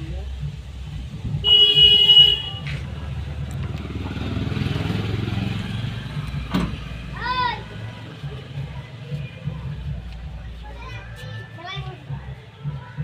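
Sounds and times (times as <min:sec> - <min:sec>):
vehicle horn: 0:01.4 - 0:02.9
vehicle engine passing: 0:02.6 - 0:10.5.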